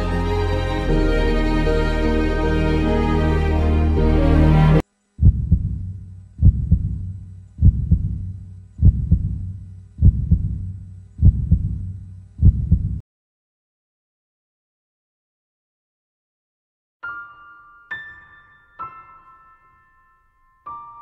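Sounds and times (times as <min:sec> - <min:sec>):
background music: 0:00.0 - 0:04.8
heartbeat thumps: 0:05.2 - 0:13.0.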